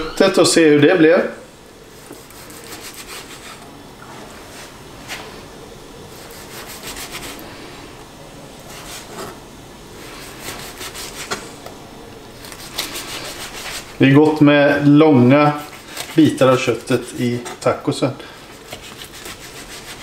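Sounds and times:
knife sawing through steak: 0:02.2 - 0:03.6, 0:06.1 - 0:07.4, 0:10.2 - 0:11.3, 0:12.4 - 0:14.0, 0:15.4 - 0:17.1, 0:18.6 - 0:20.0.

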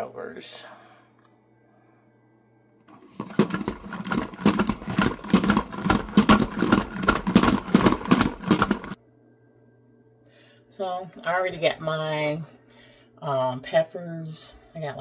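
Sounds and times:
salad spinner clattering: 0:02.9 - 0:09.0.

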